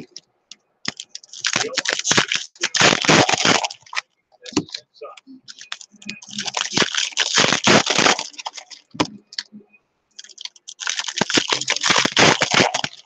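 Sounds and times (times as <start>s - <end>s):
foil wrapper crinkling: 0.9s - 4.0s, 5.5s - 9.0s, 10.2s - 13.0s.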